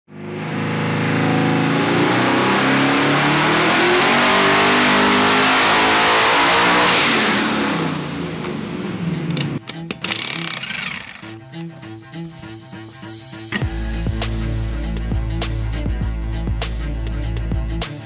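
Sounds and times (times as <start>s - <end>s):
engine revving under load: 0.1s - 9.6s
turbo and exhaust rush: 0.1s - 9.6s, 10.6s - 18.0s.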